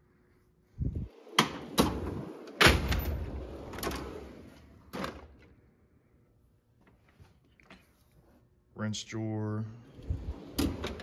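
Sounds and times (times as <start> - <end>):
drawer slides rumbling: 1.0 - 5.2, 9.9 - 11.0.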